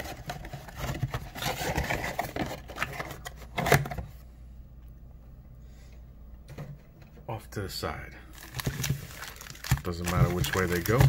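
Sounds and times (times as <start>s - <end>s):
card packs rustling: 0.0s - 4.0s, 8.3s - 11.0s.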